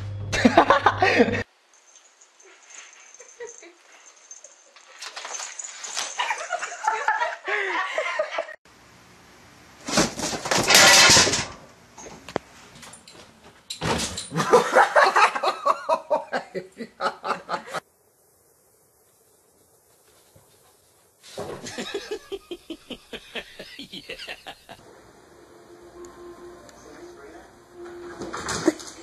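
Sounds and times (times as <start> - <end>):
person laughing hard: 0.3 - 1.4, 6.2 - 8.6, 14.4 - 17.8, 21.6 - 24.8.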